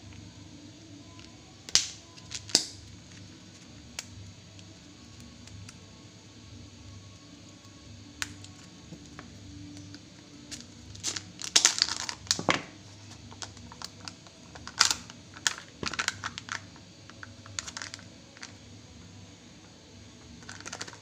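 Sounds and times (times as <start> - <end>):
plastic wrapping crinkling: 9.8 - 18.6, 20.4 - 21.0.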